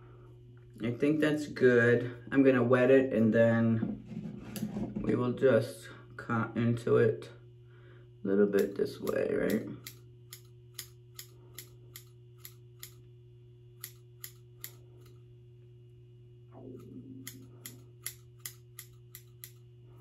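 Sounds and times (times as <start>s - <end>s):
scissors snipping hair: 8.6s - 13.0s, 13.8s - 15.2s, 16.7s - 19.7s.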